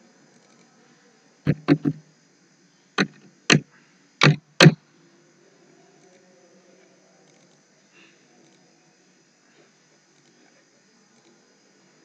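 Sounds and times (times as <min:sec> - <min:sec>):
keyboard and mouse clicks: 0:01.5 - 0:02.0, 0:03.0 - 0:03.6, 0:04.2 - 0:04.8.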